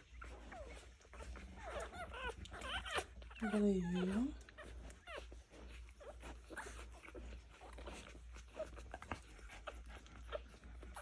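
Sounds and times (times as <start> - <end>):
newborn puppies squeaking: 0.0 - 11.0
soft clicks and rustling: 4.4 - 11.0.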